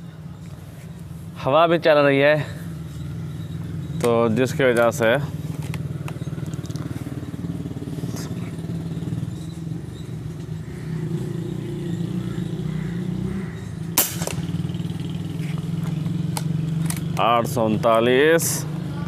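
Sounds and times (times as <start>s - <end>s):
low engine-like drone: 0.0s - 19.0s
air rifle shot crack: 14.0s - 14.6s.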